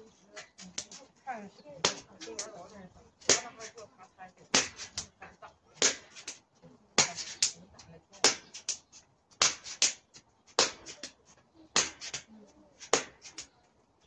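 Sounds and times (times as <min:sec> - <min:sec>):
hand slapping body: 0:01.8 - 0:02.6, 0:03.3 - 0:03.8, 0:04.6 - 0:05.2, 0:05.8 - 0:06.4, 0:07.0 - 0:07.6, 0:08.2 - 0:13.5.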